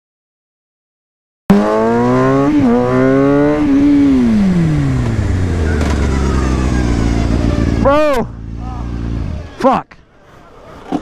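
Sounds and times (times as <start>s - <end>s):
motorcycle engine revving: 1.5s - 9.6s.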